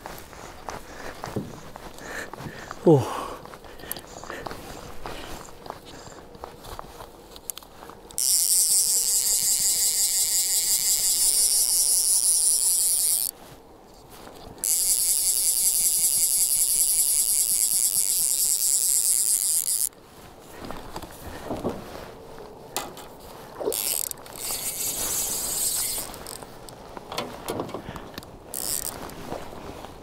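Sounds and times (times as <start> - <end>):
fishing reel click drag buzzing: 7.4 - 13.3, 14.6 - 19.9, 23.6 - 26.5, 28.5 - 29.0.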